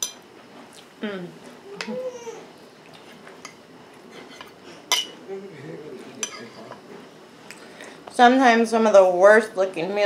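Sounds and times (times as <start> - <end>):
fork clinking on plate: 4.4 - 5.2.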